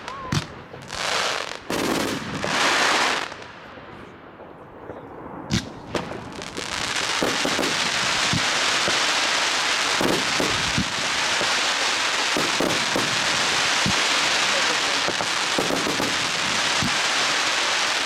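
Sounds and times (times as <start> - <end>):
sharp firework reports: 4.4 - 18.0
firework crackling hiss: 5.6 - 18.0.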